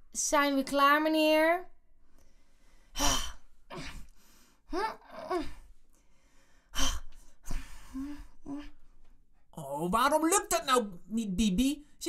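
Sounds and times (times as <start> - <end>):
person gasping and exhaling: 2.8 - 8.8.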